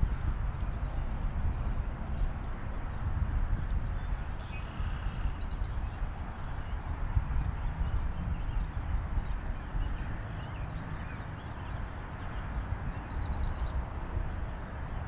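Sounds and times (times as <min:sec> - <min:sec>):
wind buffeting microphone: 0:00.0 - 0:15.0
faint bird chirps: 0:04.0 - 0:06.8.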